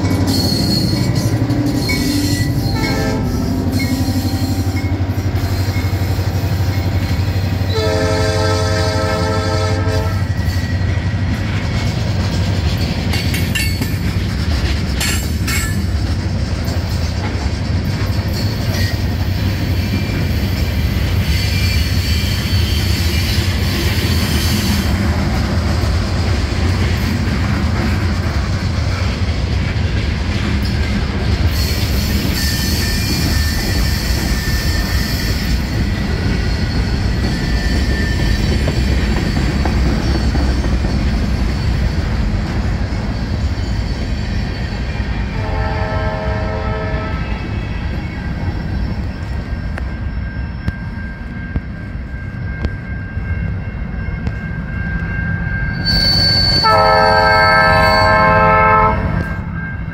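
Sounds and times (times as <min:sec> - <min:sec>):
high wheel squeal: 0:00.0 - 0:07.8, 0:10.2 - 0:11.2, 0:18.2 - 0:25.1, 0:31.4 - 0:45.6, 0:46.3 - 0:59.9
train wheels rumbling on rails: 0:00.0 - 0:59.9.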